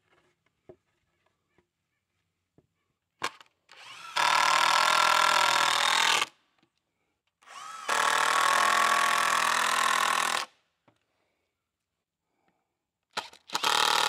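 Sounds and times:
power drill driving screws: 3.7 - 6.3, 7.4 - 10.5, 13.2 - 14.0.

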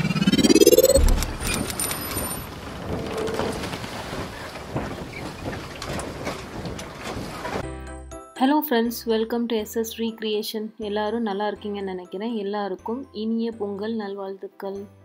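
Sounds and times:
low boom: 0.0 - 1.8
rising synthetic sweep: 0.0 - 1.8.

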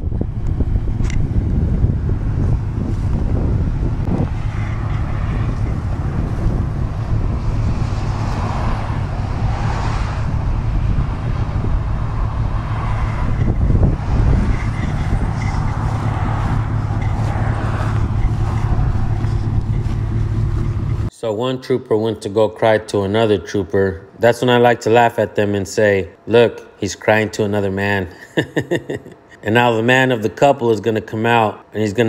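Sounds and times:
highway vehicles passing: 0.0 - 21.1
wind rumble on microphone: 0.0 - 21.1.

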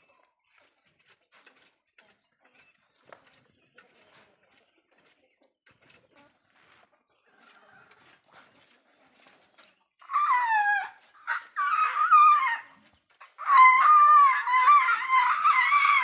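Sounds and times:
elephant calf squealing: 10.0 - 16.0.

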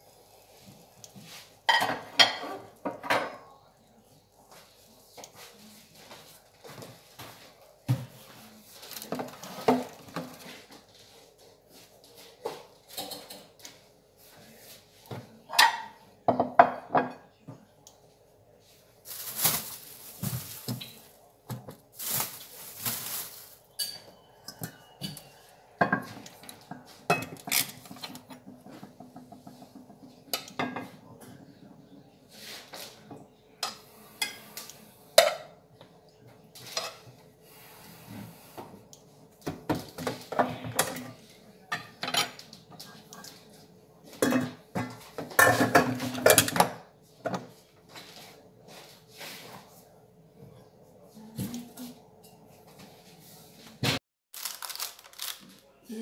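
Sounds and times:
plates and pan clattering: 1.7 - 3.4, 44.1 - 47.5.

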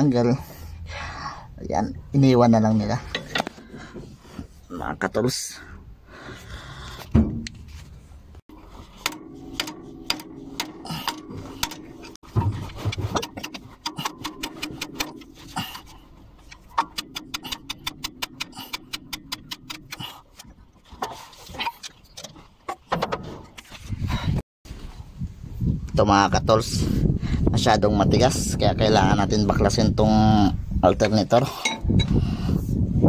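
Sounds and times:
steady low hum: 5.6 - 20.8.

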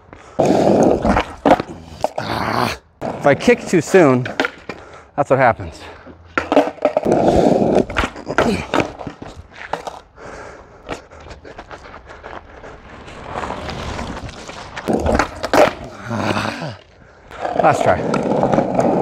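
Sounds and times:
skateboard wheels rolling on asphalt: 0.0 - 19.0
skateboard knocking on ground: 6.4 - 10.0, 14.9 - 15.9.

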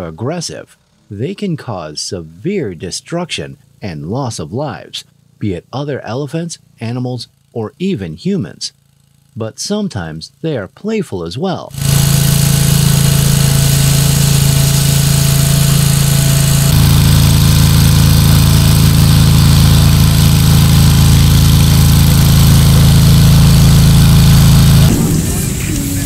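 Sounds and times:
engine running steadily: 11.8 - 26.0.

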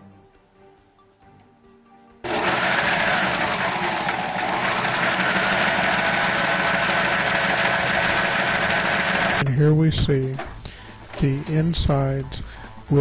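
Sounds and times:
sewing machine running: 2.2 - 9.4.

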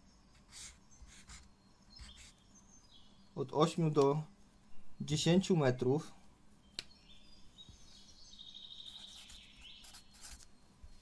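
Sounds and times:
marker squeaking on paper: 0.3 - 2.4, 8.9 - 10.5.

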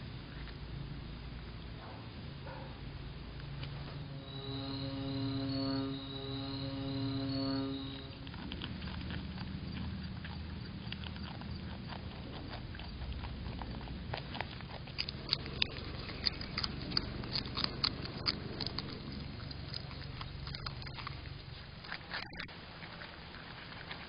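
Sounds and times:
low steady hum: 0.0 - 24.0
animals crunching squash: 8.1 - 24.0.

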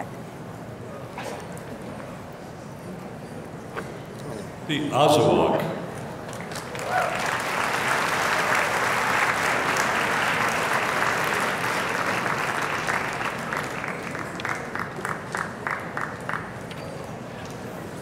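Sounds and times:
audience applauding: 6.5 - 16.6.

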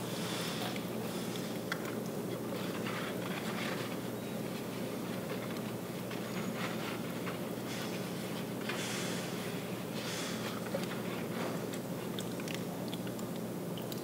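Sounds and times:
hand squishing wet slurry: 9.3 - 14.0.

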